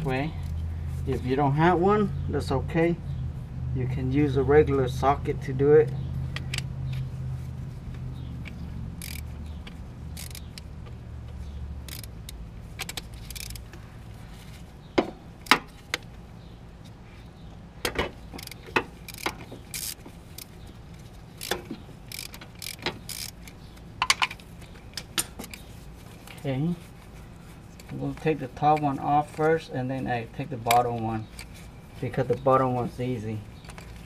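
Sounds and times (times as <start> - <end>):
ratchet clicking: 8.4 - 10.7, 11.8 - 13.7, 18.3 - 20.6, 21.4 - 24.4.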